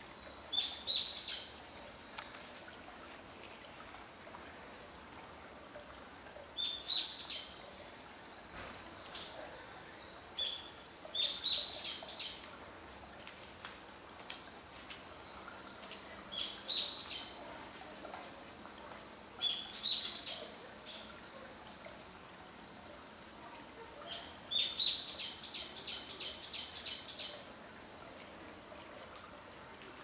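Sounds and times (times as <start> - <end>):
steady high hiss: 0.0 - 30.0
songbird singing: 10.4 - 12.4, 16.3 - 17.4, 19.4 - 21.1, 24.0 - 27.4.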